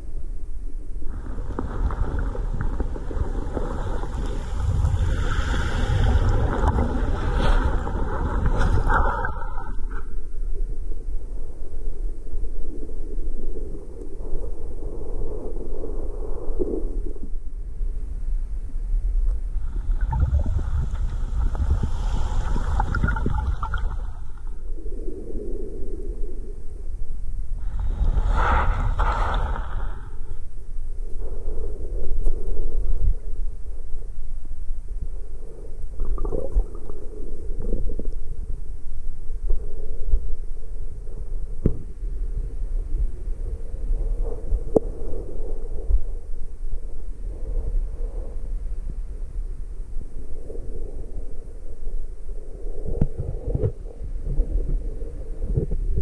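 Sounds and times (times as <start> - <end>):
crackles: 0.0 - 49.2
muffled underwater surf rumble: 0.0 - 56.0
water gurgling: 1.1 - 10.2, 19.6 - 24.9, 35.9 - 38.2.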